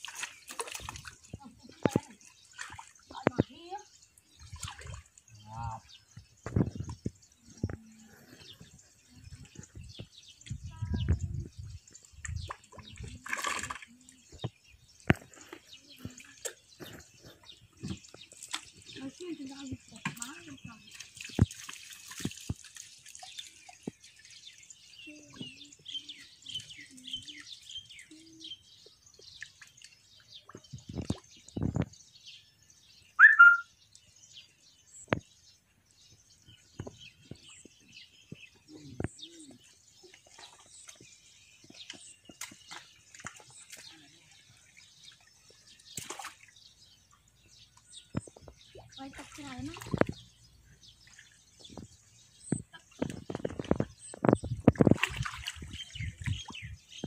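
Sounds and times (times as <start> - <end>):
water dripping: 0.0 - 7.8, 11.8 - 27.5, 40.0 - 46.6, 47.2 - 50.4, 51.0 - 56.8
whistled call: 33.2 - 33.7.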